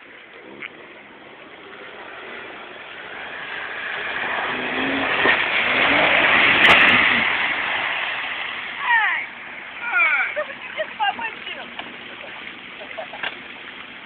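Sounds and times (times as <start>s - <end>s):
water and mud splashing: 0.0s - 14.0s
car engine revving: 0.4s - 9.9s.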